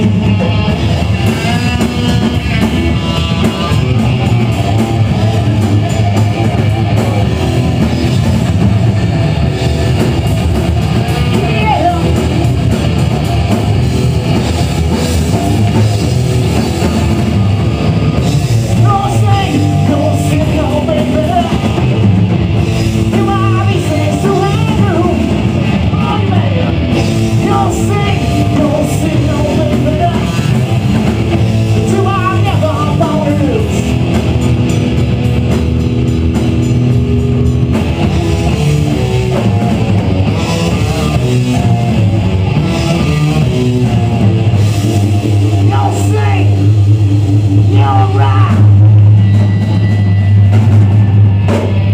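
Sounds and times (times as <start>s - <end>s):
live rock band playing: 0.0s - 51.9s
person singing: 0.1s - 7.3s, 18.6s - 21.9s, 23.0s - 31.1s, 31.7s - 33.9s.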